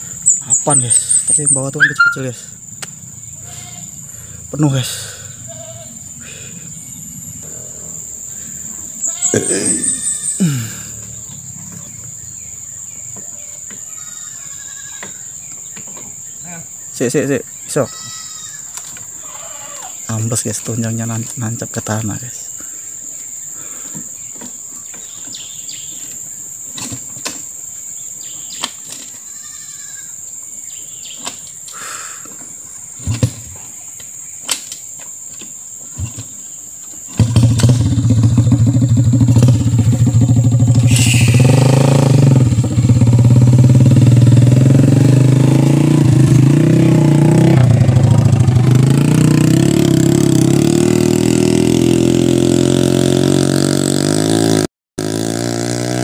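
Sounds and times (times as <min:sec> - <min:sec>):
motorcycle engine revving: 0:00.0 - 0:13.3, 0:36.9 - 0:56.0
high insect drone: 0:00.0 - 0:56.0.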